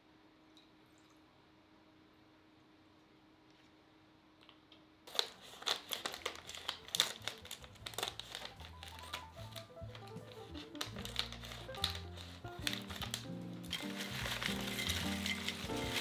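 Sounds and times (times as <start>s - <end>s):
chip bag crinkling: 5.1s - 16.0s
soft background music: 6.0s - 16.0s.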